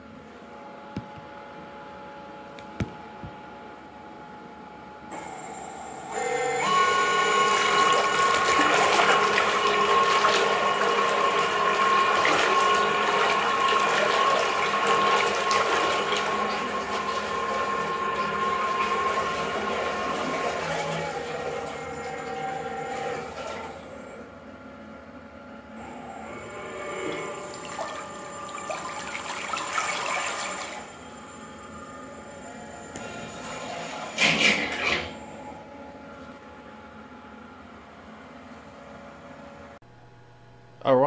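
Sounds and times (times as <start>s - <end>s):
electric motor whine: 5.2s - 15.5s, 25.8s - 28.5s
churning water: 7.0s - 24.2s, 25.9s - 31.0s.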